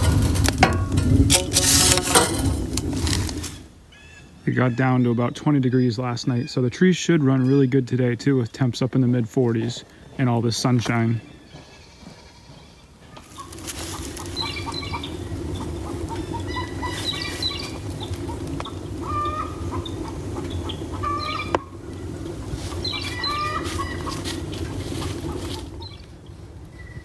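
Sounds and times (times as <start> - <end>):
wood fire evaporator rushing: 0.0 - 3.9, 12.9 - 27.0
birds chirping: 1.0 - 27.0.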